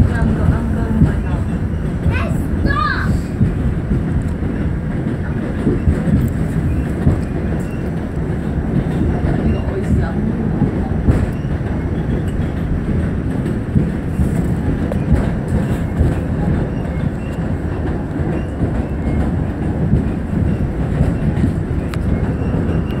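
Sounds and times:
train rumbling: 0:00.0 - 0:23.0.

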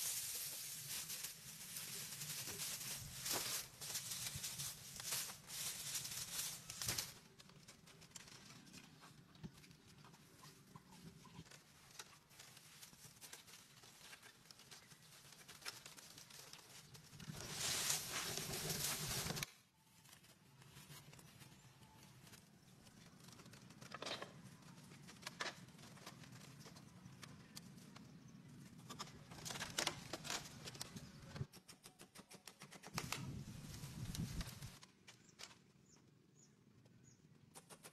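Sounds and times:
dry straw rustling: 0:00.0 - 0:08.5, 0:11.5 - 0:21.5, 0:33.0 - 0:34.8.

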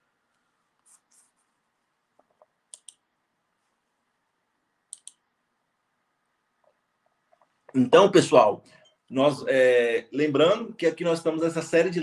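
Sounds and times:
faint short clicks: 0:04.9 - 0:05.2.

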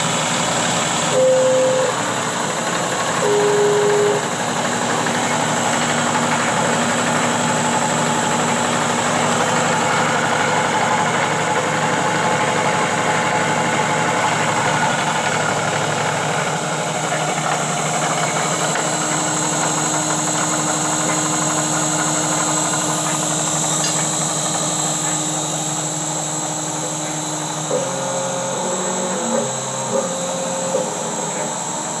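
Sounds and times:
milling machine whirring: 0:00.0 - 0:32.0.

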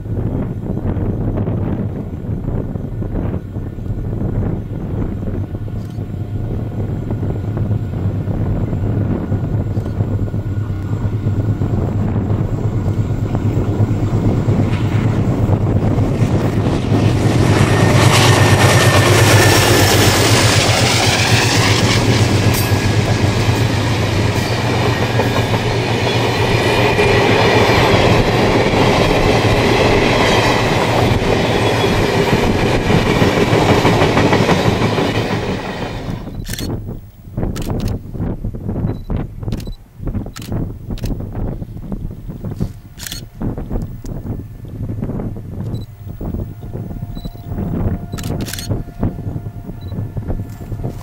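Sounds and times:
diesel locomotive engine drone: 0:00.0 - 0:51.0
train wheels clacking on rails: 0:07.3 - 0:36.6.

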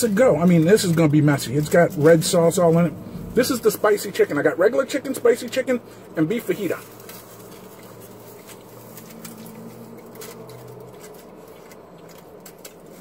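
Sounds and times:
man chewing: 0:06.9 - 0:13.0.

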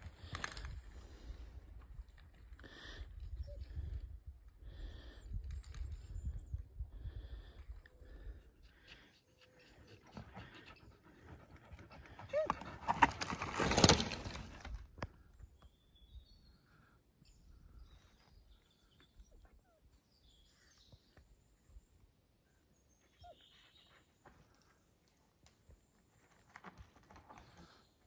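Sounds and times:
bike tyres crunching over twigs: 0:12.9 - 0:14.8
faint bird chirps: 0:15.3 - 0:24.8.

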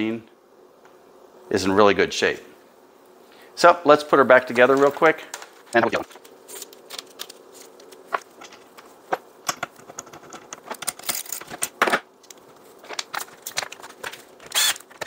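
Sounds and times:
plastic parts clicking and rattling: 0:06.1 - 0:08.9, 0:09.5 - 0:15.0.

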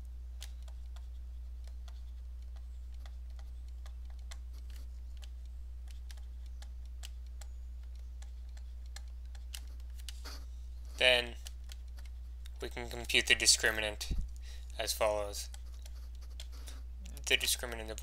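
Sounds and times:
low steady hum: 0:00.0 - 0:18.0
stylus tapping on tablet screen: 0:00.4 - 0:10.3.

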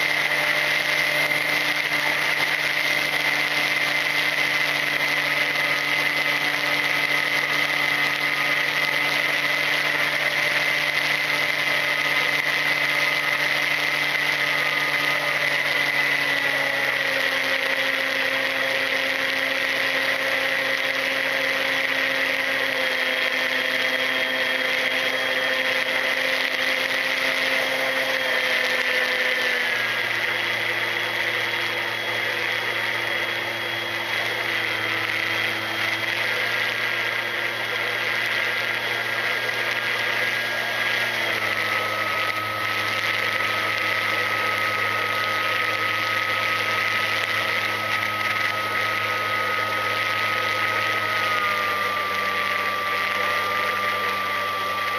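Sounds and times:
electric motor and propeller whine: 0:00.0 - 0:54.9.

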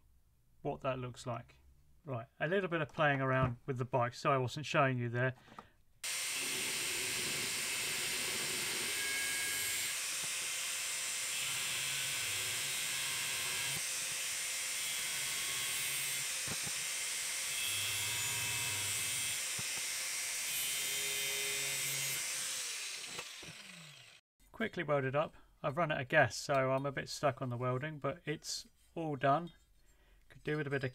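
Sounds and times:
angle grinder cutting steel: 0:06.0 - 0:24.2.

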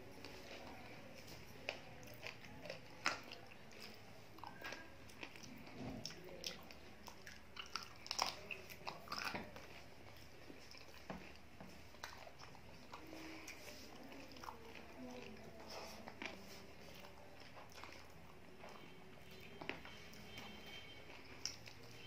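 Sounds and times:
close chewing: 0:00.0 - 0:22.0.

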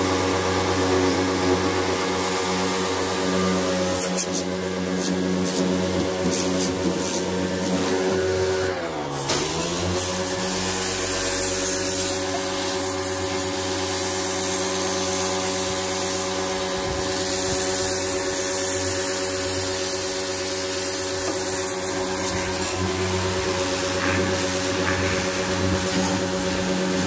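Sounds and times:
pressure washer motor hum: 0:00.0 - 0:27.0
water jet hissing: 0:09.3 - 0:27.0.

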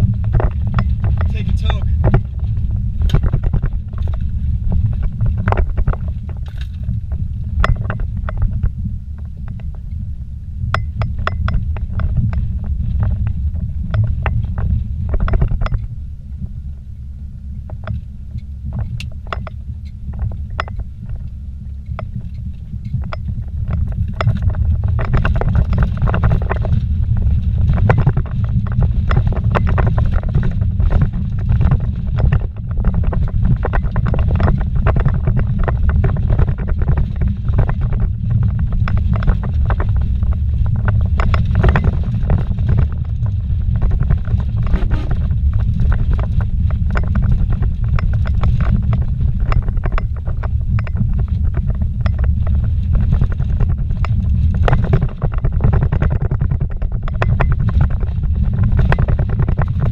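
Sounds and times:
knocks and rattles: 0:00.0 - 0:09.9, 0:10.8 - 0:16.5, 0:17.6 - 0:59.9
vehicle rumbling on dirt road: 0:00.0 - 0:59.9.

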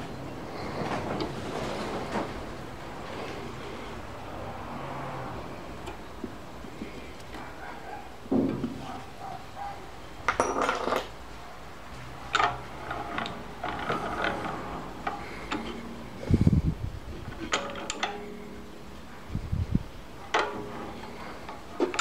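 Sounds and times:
metallic clinks and taps: 0:10.3 - 0:11.1.

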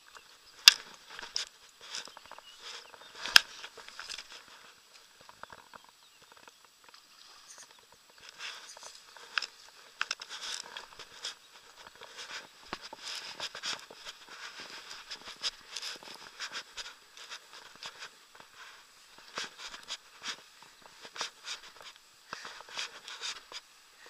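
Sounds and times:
camera handling rustling and clicks: 0:00.6 - 0:04.5.

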